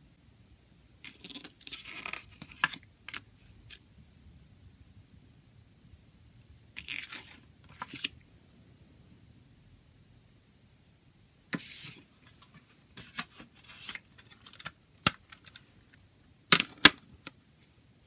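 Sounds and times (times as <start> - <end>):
booklet sliding rustle: 1.1 - 3.8, 6.8 - 8.2, 11.6 - 14.7.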